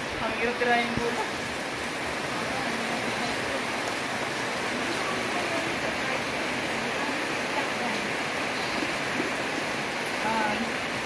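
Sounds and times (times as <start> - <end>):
steady hissing noise: 0.0 - 11.0
faint distant voices: 4.5 - 9.3.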